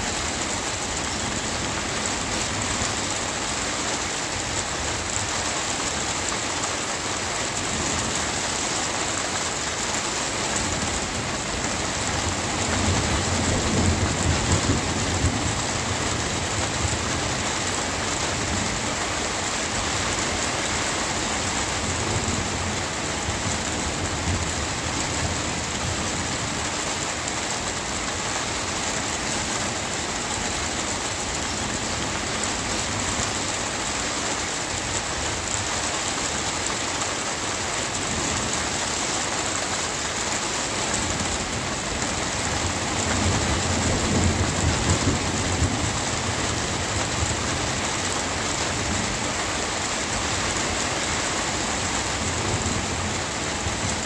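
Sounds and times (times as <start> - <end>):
steady rain hissing: 0.0 - 54.0
thunder rumbling: 11.8 - 17.5.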